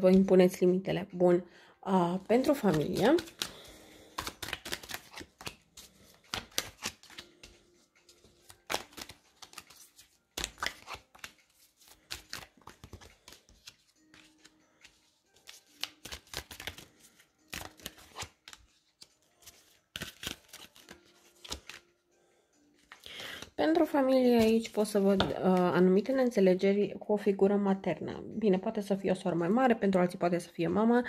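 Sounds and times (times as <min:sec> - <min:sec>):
cards being shuffled: 0:02.4 - 0:21.8.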